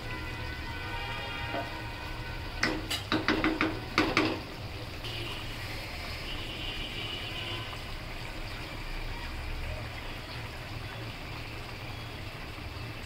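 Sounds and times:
curry bubbling: 0.0s - 13.0s
wooden spatula knocking on wok: 2.6s - 4.5s.

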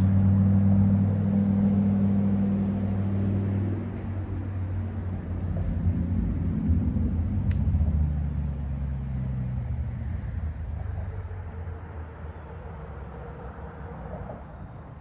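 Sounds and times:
passing vehicle engine rumble: 0.0s - 15.0s
sharp click: 7.5s - 7.7s.

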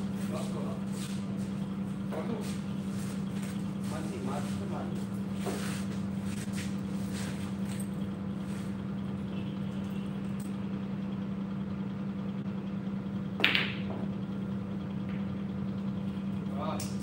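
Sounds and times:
low machinery hum: 0.0s - 17.0s
cue striking pool ball: 13.4s - 14.1s.

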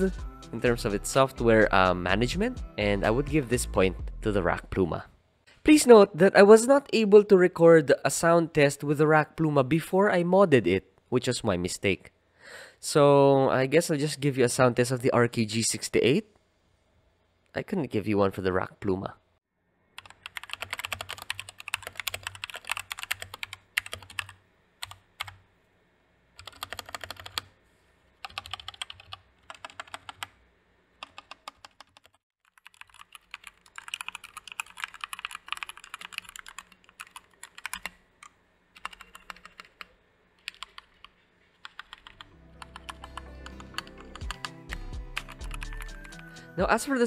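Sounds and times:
background music: 0.0s - 5.0s, 42.1s - 47.0s
mechanical keyboard typing: 20.0s - 25.4s, 26.4s - 27.5s, 28.2s - 30.4s, 31.0s - 38.0s, 38.8s - 46.2s.

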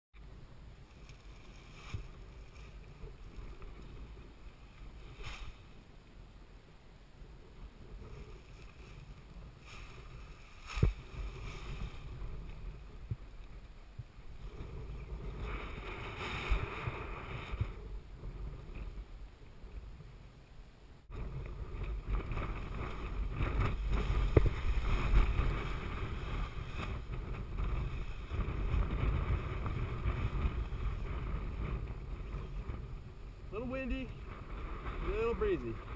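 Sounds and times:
wind buffeting microphone: 7.3s - 20.3s, 21.1s - 35.9s.

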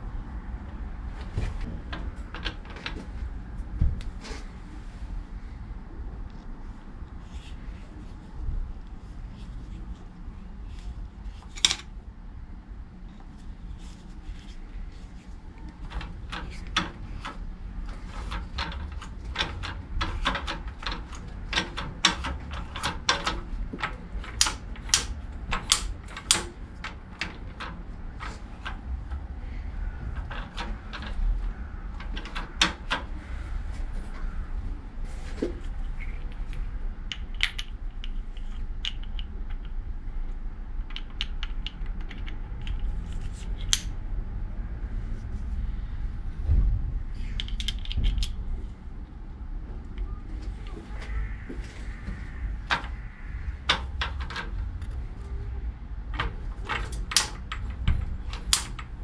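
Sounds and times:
low steady hum: 0.0s - 59.0s
metal clicks of gears and screwdriver: 18.1s - 28.8s, 36.0s - 39.7s, 40.9s - 43.9s.

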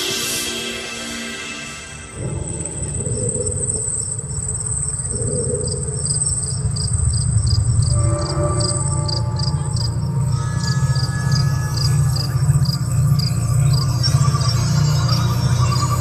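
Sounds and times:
low rumbling drone: 1.7s - 16.0s
insect chirping: 2.1s - 16.0s.

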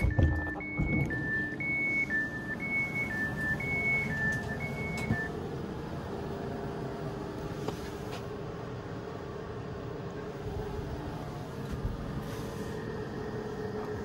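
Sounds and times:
two-tone door warning beeps: 0.0s - 5.4s.

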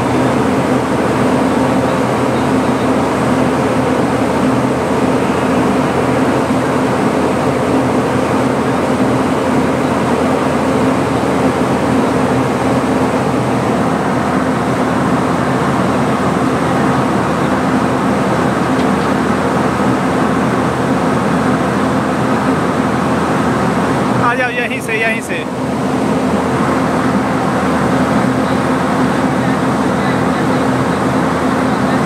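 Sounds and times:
locomotive hum with rushing air: 0.0s - 32.0s.

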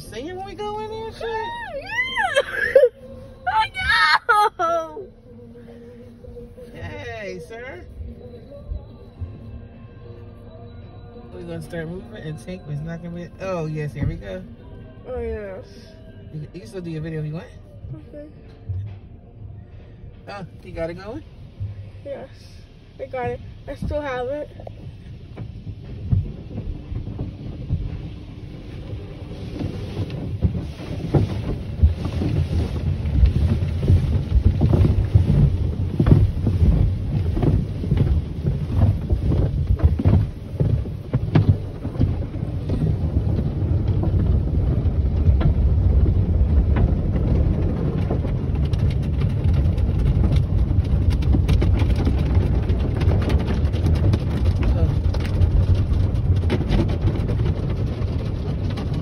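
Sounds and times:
water spray drumming on car: 22.9s - 59.0s
car wash brushes slapping: 23.0s - 59.0s.

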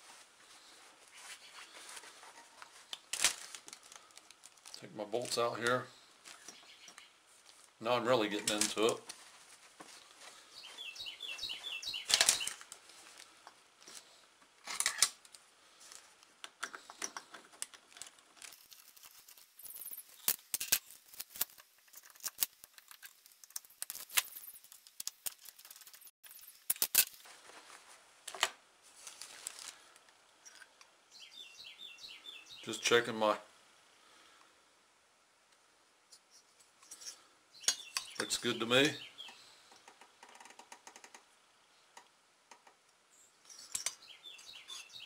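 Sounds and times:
quick bird chirps: 10.6s - 12.6s
parts and tools set down: 12.1s - 12.6s, 14.6s - 15.2s, 16.6s - 22.4s, 43.5s - 44.0s.

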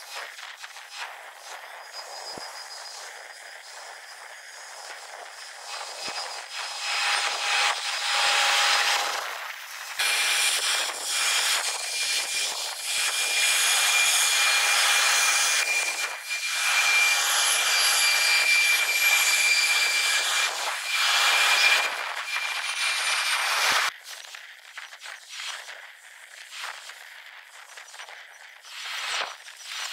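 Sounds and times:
high jet whine: 0.0s - 23.9s
jet engines roaring: 0.6s - 23.9s.

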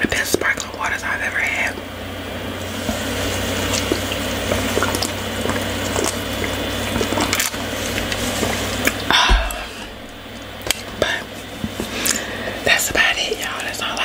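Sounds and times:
person drinking from a cup: 4.8s - 11.3s.

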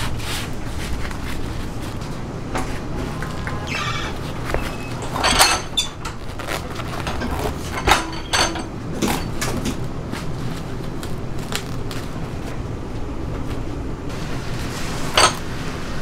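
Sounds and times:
steady background noise: 0.0s - 16.0s
utensils and dishes clinking: 2.6s - 9.9s, 14.8s - 15.6s.

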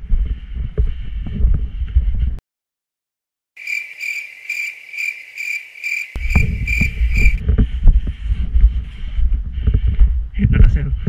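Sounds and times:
insect chirping: 3.6s - 7.4s.

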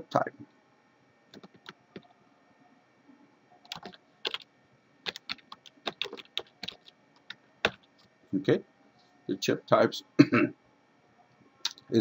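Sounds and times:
computer keyboard typing: 1.4s - 2.1s, 3.7s - 4.4s, 5.1s - 7.9s.

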